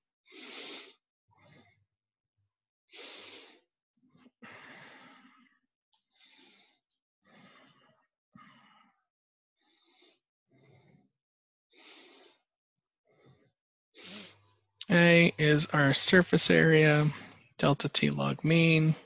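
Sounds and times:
person breathing: 4.4 - 9.0, 9.6 - 11.1, 11.7 - 12.5.

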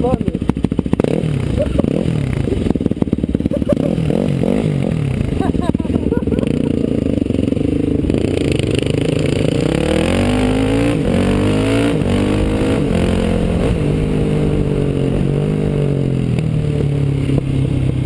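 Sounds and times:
dirt bike engine shifting gears: 0.0 - 18.0.

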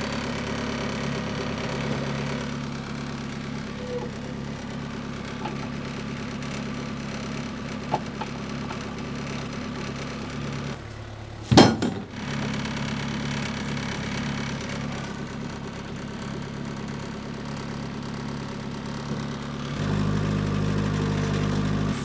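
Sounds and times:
tractor engine running: 0.0 - 22.0
loud metal clank: 11.5 - 12.1.

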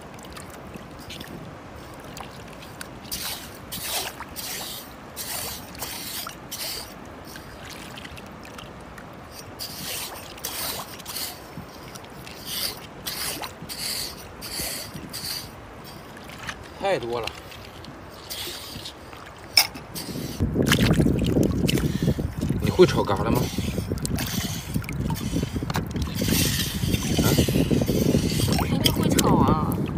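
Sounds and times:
rake scraping wet sand in water: 3.1 - 7.0, 9.4 - 11.5, 12.3 - 20.4, 22.6 - 29.4.

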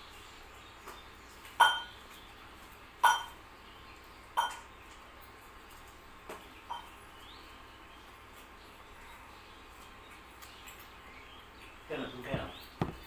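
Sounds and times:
faint tap: 12.3 - 13.0.

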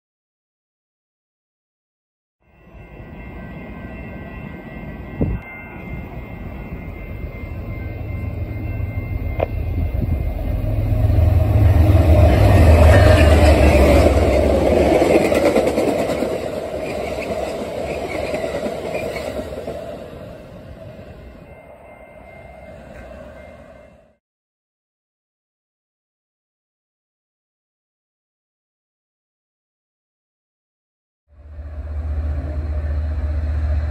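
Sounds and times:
diesel locomotive engine rumble: 2.6 - 24.2, 31.3 - 33.9
train wheels on rails: 2.7 - 24.1, 31.4 - 33.9.

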